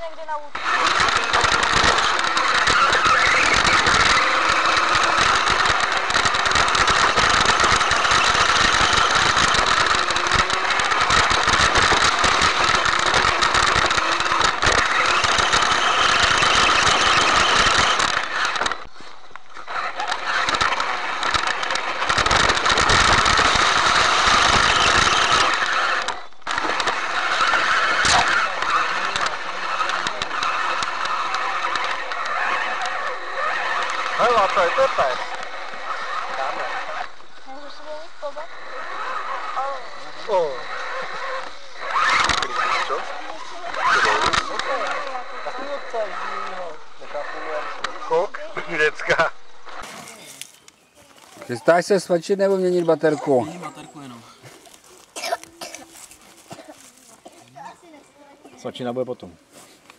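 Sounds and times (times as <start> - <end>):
rc car motor running: 0.0 - 59.3
chassis rattle: 0.5 - 50.3.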